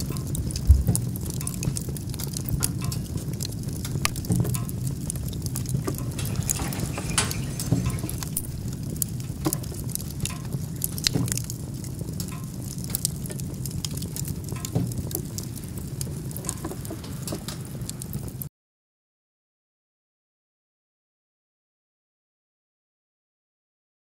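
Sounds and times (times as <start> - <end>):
low stove rumble: 0.0 - 18.5
wood fire crackling and popping: 0.0 - 18.5.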